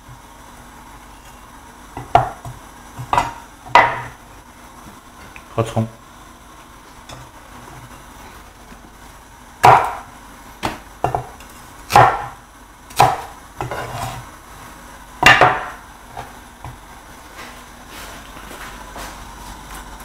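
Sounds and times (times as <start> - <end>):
cleaver chopping on wooden board: 2.0 - 4.2, 9.6 - 12.4, 13.0 - 14.0, 15.2 - 15.8.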